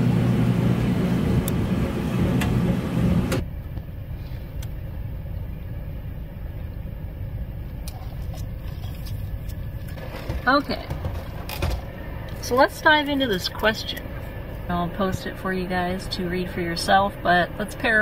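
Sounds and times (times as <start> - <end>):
washing machine churning: 0.0 - 3.4, 6.2 - 18.0
low rumble inside car: 0.0 - 18.0
water sloshing: 7.7 - 15.3.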